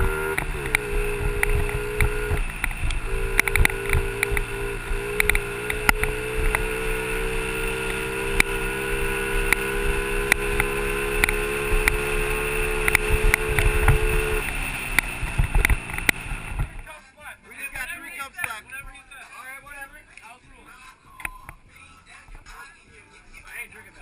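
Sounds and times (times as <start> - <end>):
dirt bike engine at high revs: 0.0 - 16.8
sharp clicks and knocks: 0.2 - 8.6, 9.4 - 16.8.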